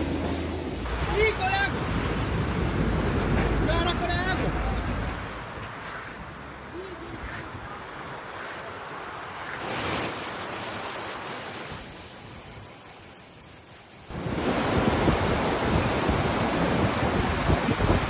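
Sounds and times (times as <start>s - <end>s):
floodwater rushing past weir: 0.0s - 18.0s
wind buffeting microphone: 14.1s - 18.0s.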